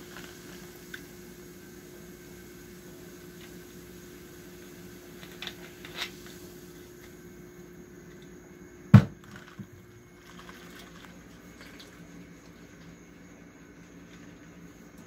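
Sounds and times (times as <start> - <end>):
soda fizzing over ice: 0.0 - 7.1, 9.2 - 12.8
loud thump: 8.9 - 9.2.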